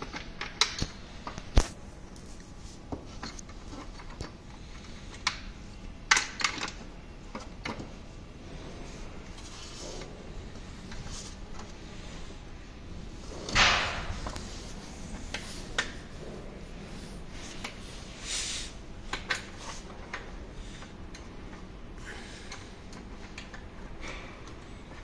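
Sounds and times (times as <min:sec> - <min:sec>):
plastic parts clicking and knocking: 0:00.0 - 0:01.8, 0:03.1 - 0:08.0.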